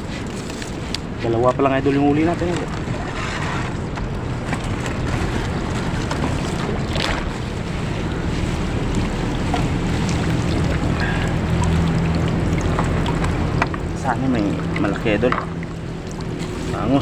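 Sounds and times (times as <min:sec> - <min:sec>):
wet net pulled over side: 0:00.0 - 0:15.2, 0:15.8 - 0:17.0
low steady hum: 0:00.0 - 0:17.0
water lapping at boat: 0:00.0 - 0:17.0
splash-like rush: 0:04.6 - 0:17.0.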